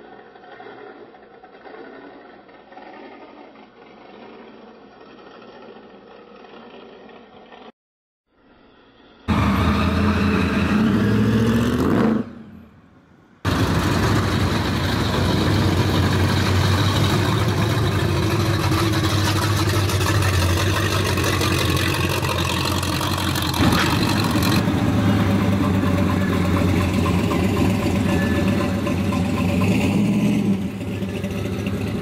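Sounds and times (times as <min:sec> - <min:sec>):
car engine revving: 0:13.4 - 0:32.0
car engine starting and running: 0:13.4 - 0:32.0.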